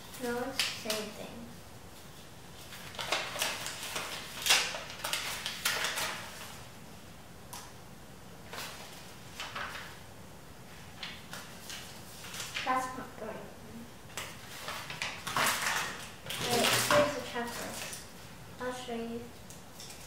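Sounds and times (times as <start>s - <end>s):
paper crinkling and rustling: 2.0s - 6.7s, 8.4s - 10.0s, 10.8s - 13.0s, 14.1s - 18.2s.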